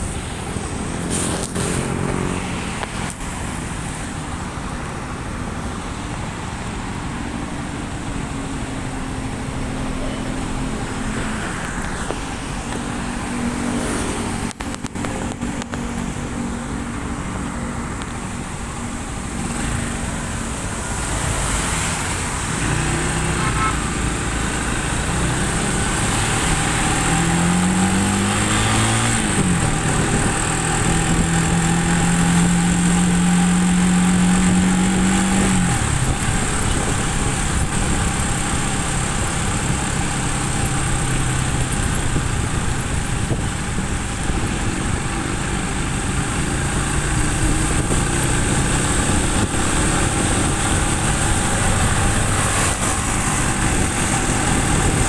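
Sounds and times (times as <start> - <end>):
road traffic: 0.0 - 55.0
motorcycle engine running: 17.9 - 55.0.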